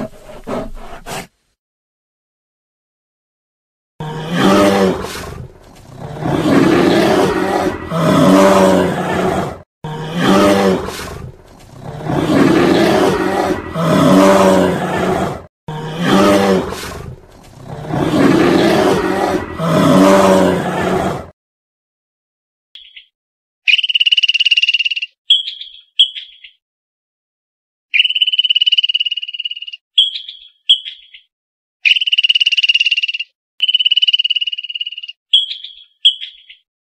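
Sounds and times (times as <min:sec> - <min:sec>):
big cat roaring and growling: 0:00.0 - 0:01.3, 0:04.0 - 0:21.3.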